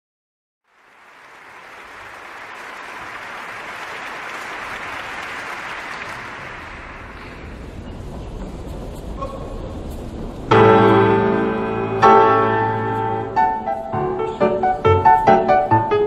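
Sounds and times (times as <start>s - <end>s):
audience applauding: 0.6s - 7.7s.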